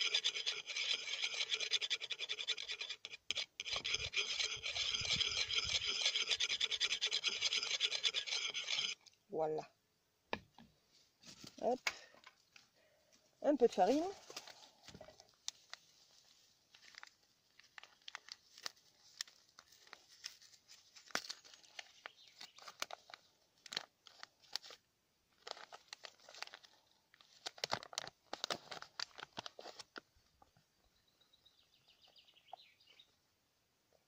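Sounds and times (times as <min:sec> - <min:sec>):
paper bag crinkling and tearing: 0:16.7 - 0:20.4, 0:22.6 - 0:30.0.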